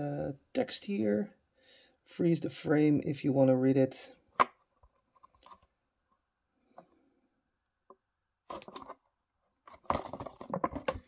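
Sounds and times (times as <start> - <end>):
plastic crackling: 9.7 - 11.0.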